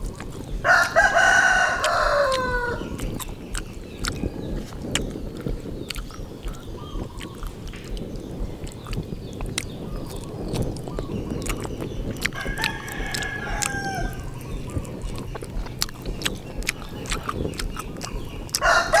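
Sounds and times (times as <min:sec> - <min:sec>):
person chewing meat off a bone: 0:00.0 - 0:19.0
rooster crowing: 0:00.2 - 0:03.0, 0:12.2 - 0:15.7, 0:18.6 - 0:19.0.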